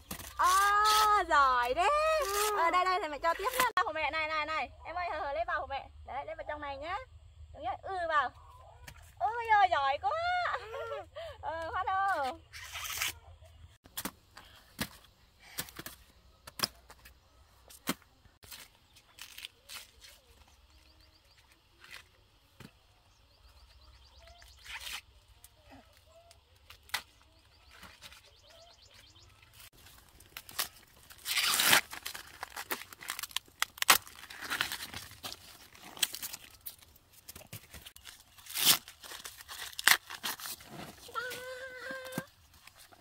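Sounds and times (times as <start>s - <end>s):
corn plants rustling and tearing: 0.0s - 3.8s, 17.7s - 22.2s, 24.4s - 43.0s
corn stalks snapping: 26.7s - 27.2s, 30.2s - 40.8s.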